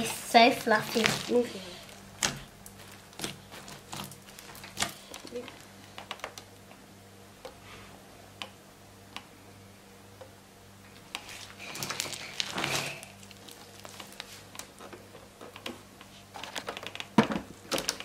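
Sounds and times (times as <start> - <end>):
slime crackling when squished: 0.0 - 6.4, 11.2 - 14.8
faint electrical hum: 0.0 - 18.0.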